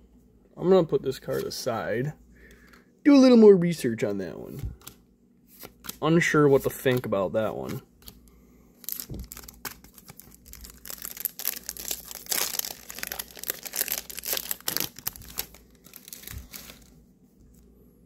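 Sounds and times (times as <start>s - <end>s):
foil wrapper crinkling and tearing: 8.8s - 16.9s.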